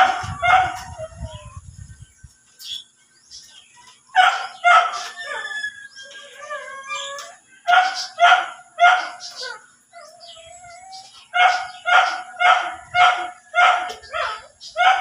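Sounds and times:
dog barking: 0.0s - 1.0s, 4.2s - 5.2s, 7.7s - 9.5s, 11.4s - 15.0s
dog whining: 4.7s - 7.4s.

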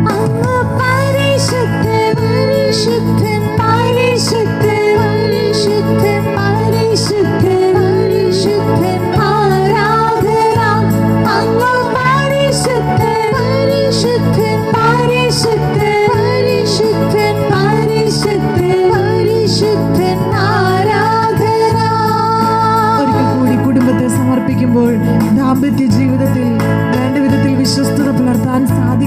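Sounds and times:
person singing melody: 0.0s - 29.0s
sustained keyboard chords: 0.0s - 29.0s.

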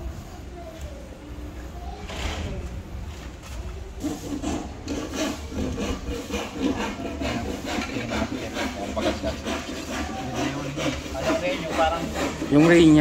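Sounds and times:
rough scraping strokes: 4.0s - 13.0s.

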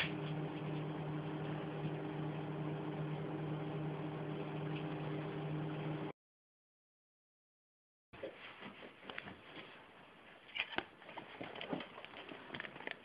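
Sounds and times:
microwave oven hum: 0.0s - 6.1s.

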